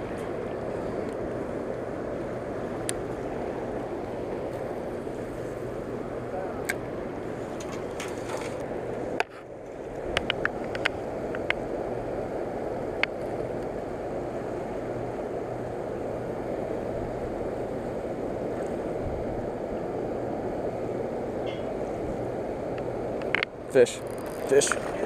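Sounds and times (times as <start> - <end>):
river current rushing: 0.0 - 25.0.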